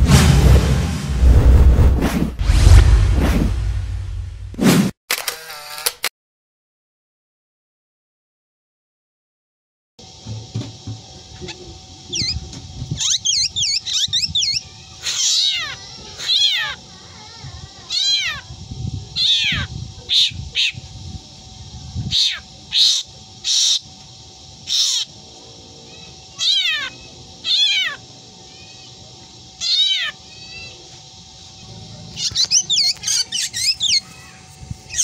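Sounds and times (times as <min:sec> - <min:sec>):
faint steady hum: 0:10.0 - 0:35.0
bird meow-like calls: 0:11.4 - 0:12.4, 0:13.0 - 0:20.8, 0:22.1 - 0:23.8, 0:24.6 - 0:25.1, 0:25.9 - 0:29.0, 0:29.6 - 0:30.9, 0:32.1 - 0:35.0
bird quick chirps: 0:11.4 - 0:12.4, 0:13.0 - 0:15.4, 0:32.2 - 0:34.1.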